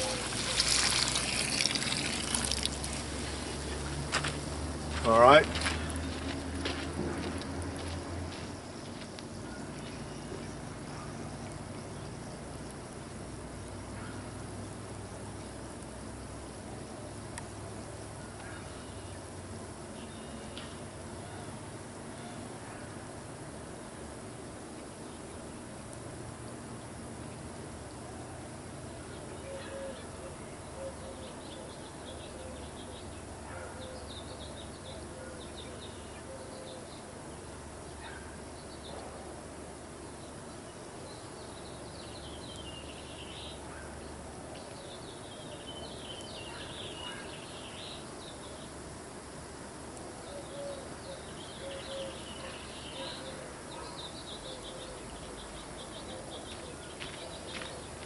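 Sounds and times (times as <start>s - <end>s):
birds chirping: 0.0s - 12.4s, 28.8s - 39.2s, 40.0s - 48.9s, 50.0s - 58.0s
outdoor background hiss: 0.0s - 58.0s.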